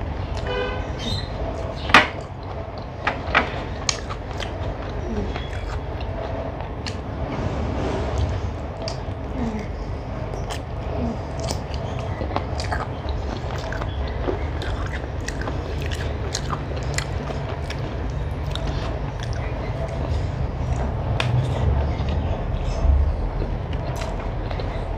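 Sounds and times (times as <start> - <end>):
close chewing: 8.8 - 24.9.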